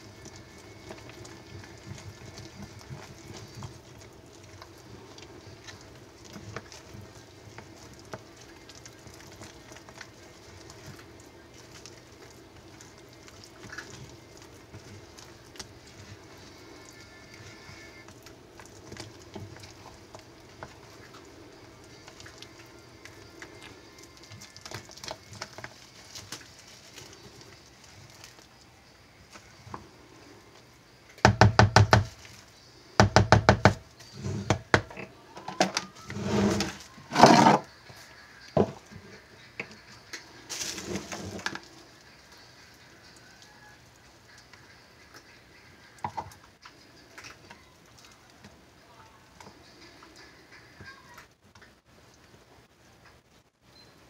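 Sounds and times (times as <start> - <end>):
spatula scraping soap batter: 0.0 - 28.5, 35.7 - 48.6.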